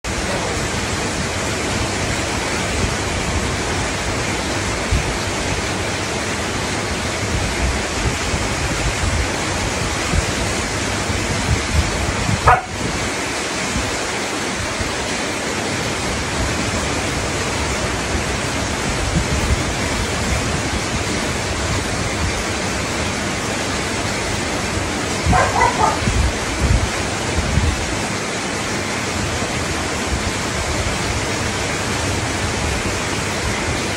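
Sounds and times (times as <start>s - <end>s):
dog crying: 25.3s - 26.1s.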